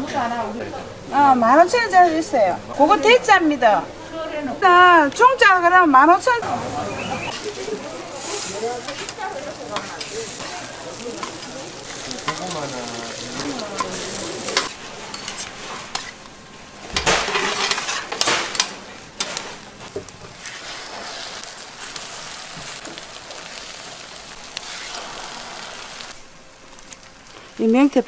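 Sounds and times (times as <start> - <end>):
food sizzling in oil: 6.4 - 28.0
metal utensil scraping pan: 11.2 - 16.2, 17.0 - 19.5.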